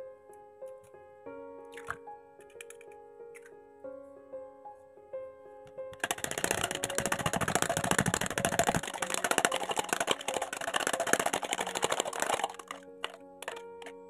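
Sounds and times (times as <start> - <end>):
egg beaten in plastic jug: 6.0 - 13.9.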